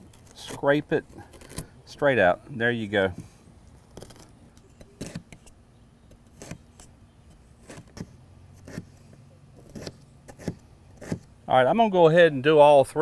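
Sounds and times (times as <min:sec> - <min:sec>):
knife chopping on cutting board: 0:09.6 - 0:11.3.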